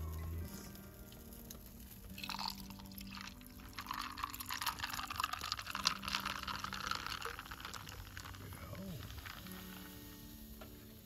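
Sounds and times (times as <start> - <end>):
drink pouring into a glass: 1.5 - 10.3
fizzing drink: 1.5 - 10.5.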